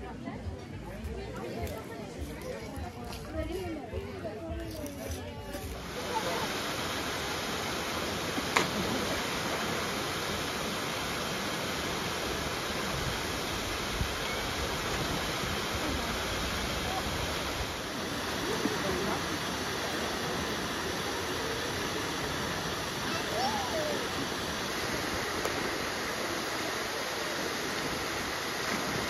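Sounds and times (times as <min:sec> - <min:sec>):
faint voices: 0:00.0 - 0:29.0
water jet splashing into pool: 0:05.7 - 0:29.0.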